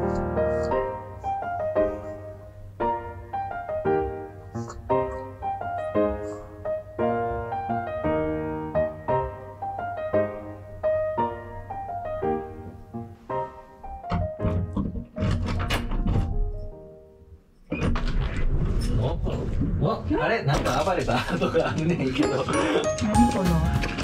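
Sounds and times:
soft solo piano music: 0.0s - 17.2s, 22.1s - 24.0s.

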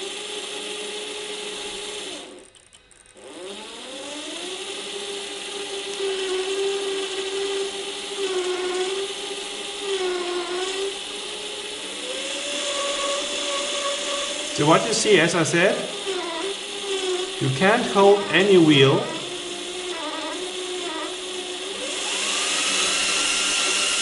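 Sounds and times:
toy truck motor whining: 0.0s - 24.0s.

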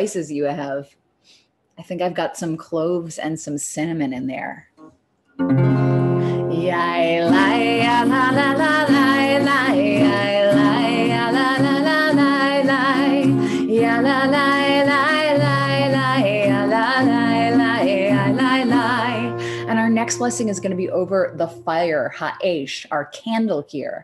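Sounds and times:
strummed acoustic guitar: 4.8s - 22.0s
woman singing wordless melody: 6.2s - 24.0s.

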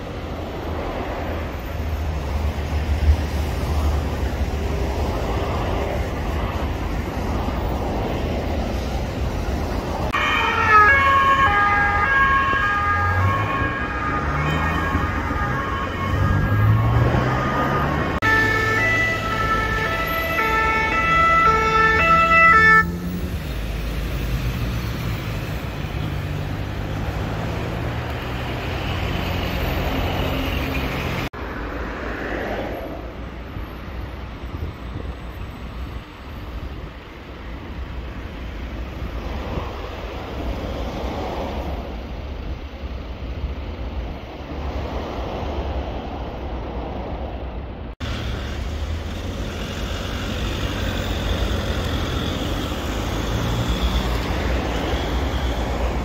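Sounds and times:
road traffic rumble: 0.0s - 56.0s
ambulance two-tone siren: 10.1s - 23.1s, 50.9s - 56.0s.

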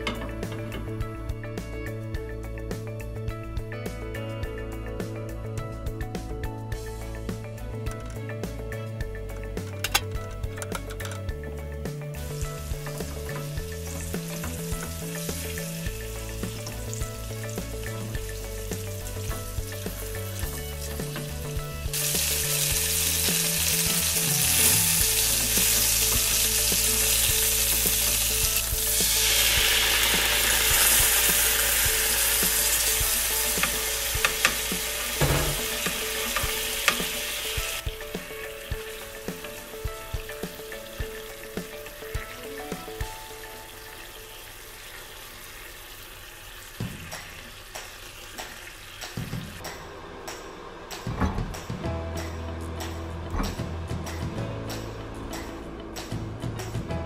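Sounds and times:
chicken frying in oil: 12.4s - 49.6s.

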